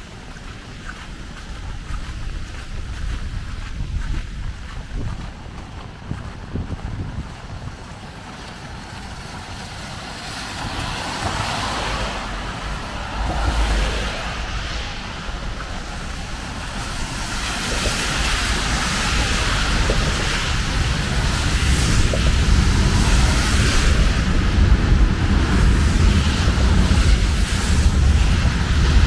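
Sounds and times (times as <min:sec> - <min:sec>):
low traffic rumble: 0:00.0 - 0:29.0
tyres hissing on wet road: 0:07.0 - 0:29.0.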